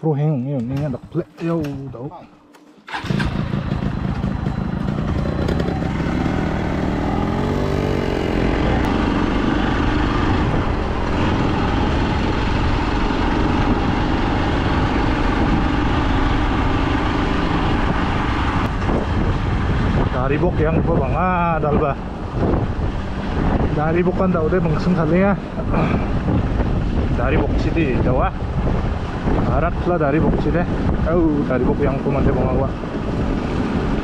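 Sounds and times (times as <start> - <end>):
motorcycle engine revving: 2.9 - 24.0.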